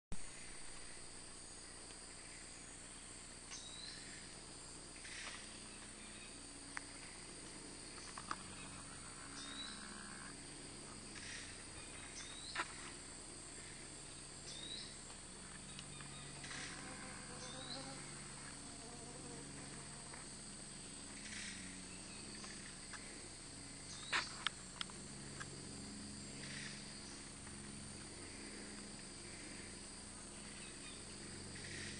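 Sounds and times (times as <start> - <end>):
insects droning: 0.2 - 31.9.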